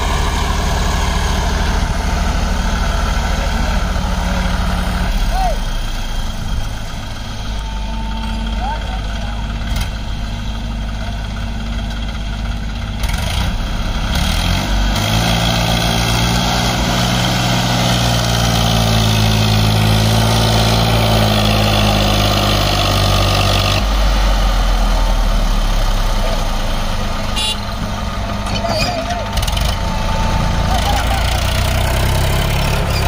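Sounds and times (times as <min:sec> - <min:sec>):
tractor diesel engine under load: 0:00.0 - 0:33.0.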